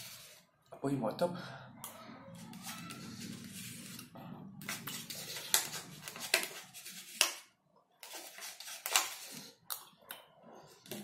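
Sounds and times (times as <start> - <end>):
spoon scraping plastic cup: 2.4 - 7.4, 8.0 - 9.6.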